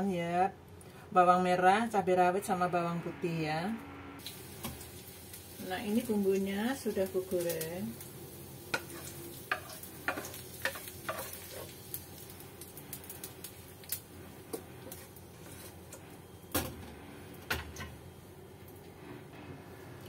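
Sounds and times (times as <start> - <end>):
wooden spatula scraping frying pan: 8.7 - 11.8, 14.5 - 15.8.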